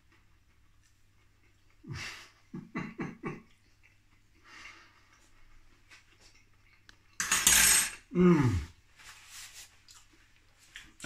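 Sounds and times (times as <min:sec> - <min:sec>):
man groaning with enjoyment: 0:08.1 - 0:08.7
man humming: 0:08.1 - 0:08.7.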